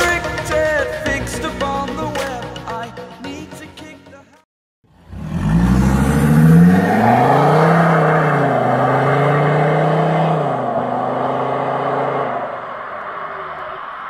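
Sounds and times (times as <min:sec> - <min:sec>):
diesel car accelerating away: 0:04.9 - 0:14.0.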